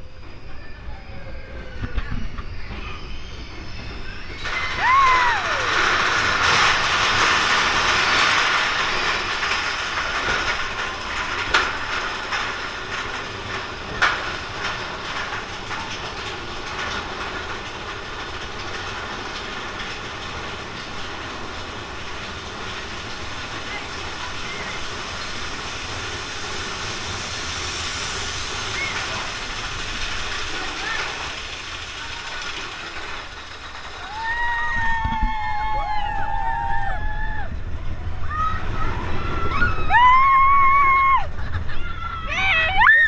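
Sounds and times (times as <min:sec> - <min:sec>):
short falling squeal: 0:00.0 - 0:06.8, 0:26.9 - 0:30.1
roller coaster rumbling and clattering: 0:00.0 - 0:43.0.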